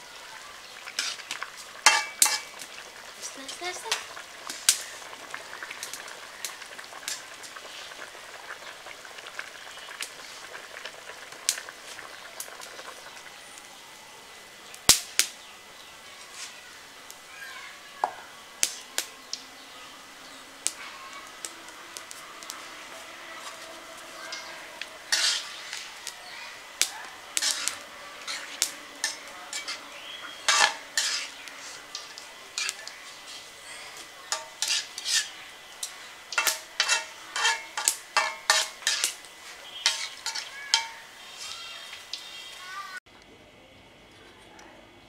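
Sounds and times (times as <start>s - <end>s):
pot bubbling: 0.0s - 17.3s, 18.0s - 42.6s
metal spatula scraping pot: 1.0s - 2.5s, 23.4s - 26.1s, 27.4s - 35.4s, 36.3s - 41.6s.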